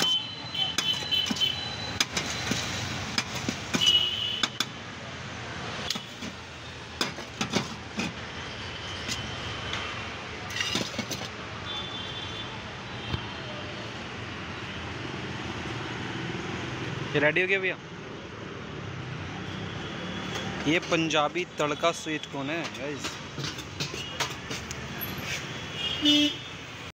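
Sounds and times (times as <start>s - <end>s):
street traffic: 0.0s - 26.9s
spoon scraping steel containers: 7.0s - 8.3s, 10.5s - 11.4s, 22.7s - 25.6s.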